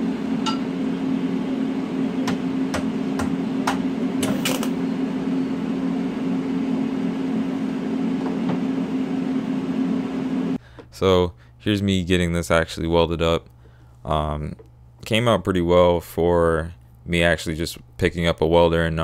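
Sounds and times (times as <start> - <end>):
welder buzzing hum: 0.0 - 10.6.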